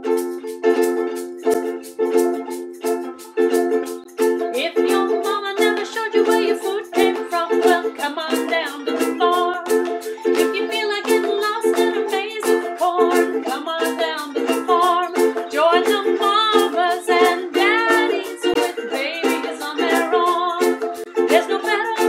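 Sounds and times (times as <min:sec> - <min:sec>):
ukulele strumming: 0:00.0 - 0:22.0.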